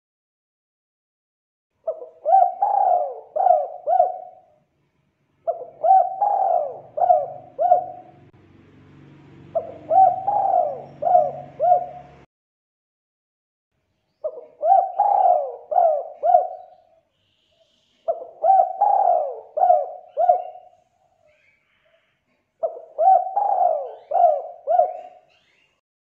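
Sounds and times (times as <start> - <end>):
dove cooing: 1.8 - 4.6, 5.4 - 8.3, 9.4 - 12.3, 14.2 - 17.0, 18.1 - 20.9, 22.6 - 25.6.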